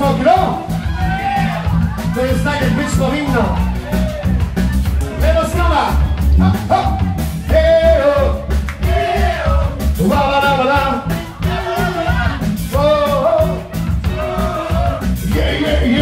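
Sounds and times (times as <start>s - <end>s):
live pop-rock band playing: 0.0s - 16.0s
person singing: 7.5s - 16.0s.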